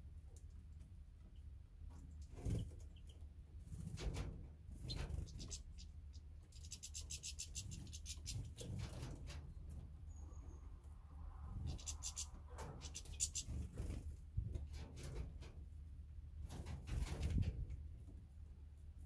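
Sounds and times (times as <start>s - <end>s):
songbirds ticking calls: 1.2s - 3.3s, 4.7s - 10.7s, 11.6s - 13.8s.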